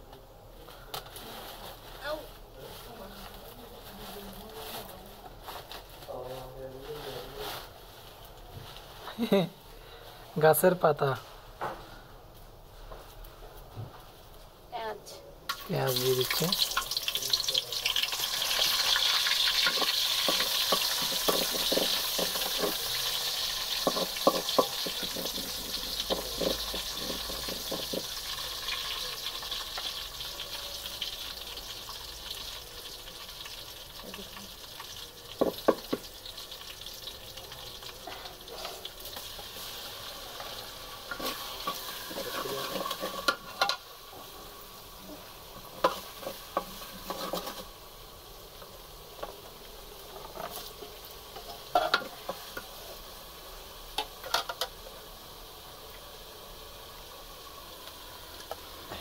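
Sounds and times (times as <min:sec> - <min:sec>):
onions sizzling in oil: 0:01.2 - 0:11.9, 0:12.6 - 0:59.0
wooden spoon scraping pot: 0:19.5 - 0:28.2, 0:39.6 - 0:44.3, 0:45.6 - 0:47.7.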